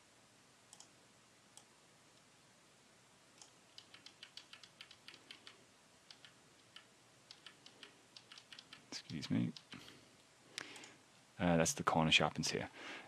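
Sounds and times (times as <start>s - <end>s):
keyboard and mouse clicks: 0.7s - 0.9s, 3.4s - 10.0s.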